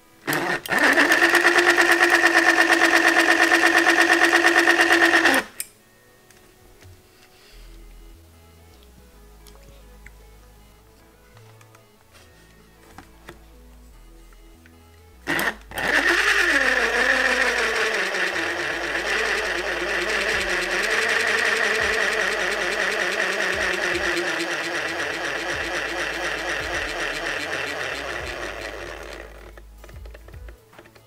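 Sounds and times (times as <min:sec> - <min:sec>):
small electric motor whirring: 0:00.0 - 0:05.6, 0:15.3 - 0:30.6.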